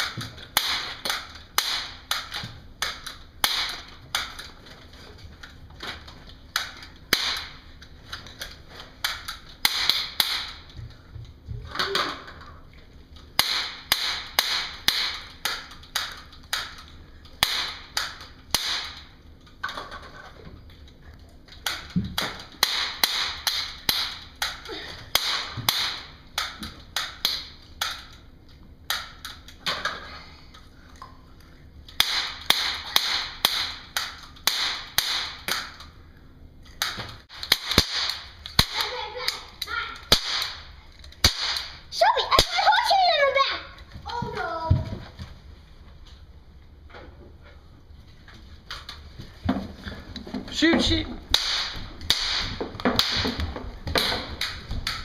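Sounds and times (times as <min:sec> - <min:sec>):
toy cap guns snapping: 0:00.0 - 0:04.5, 0:13.4 - 0:19.1, 0:28.9 - 0:29.7, 0:31.9 - 0:35.9, 0:36.7 - 0:39.4.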